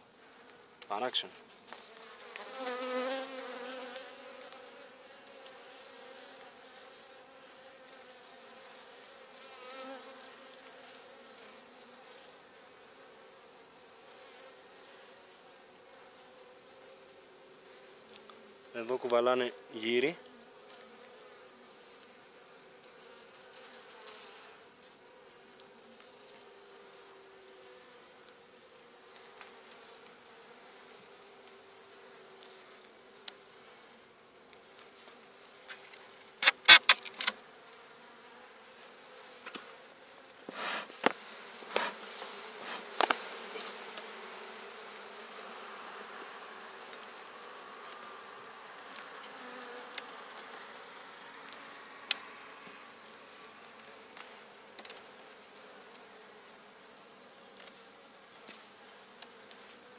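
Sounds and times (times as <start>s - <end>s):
honeybees humming: 0.0s - 59.9s
hive tool clicking on wooden frames: 35.7s - 37.4s, 40.9s - 44.2s, 48.8s - 50.6s
brief hiss: 36.4s - 37.3s, 40.5s - 43.7s.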